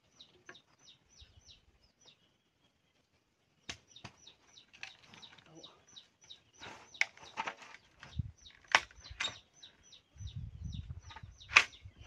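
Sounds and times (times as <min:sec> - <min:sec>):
bird chirping: 0:00.0 - 0:12.0
bamboo pole cracking: 0:08.5 - 0:09.3.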